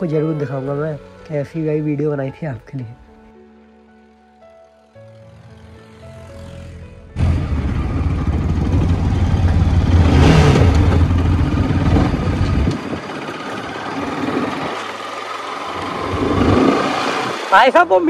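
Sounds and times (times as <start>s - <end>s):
motorcycle engine running: 5.1s - 18.0s.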